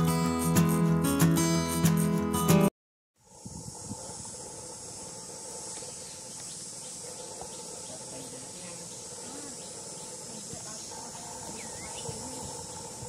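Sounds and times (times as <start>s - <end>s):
high-pitched insect chorus: 3.2s - 13.0s.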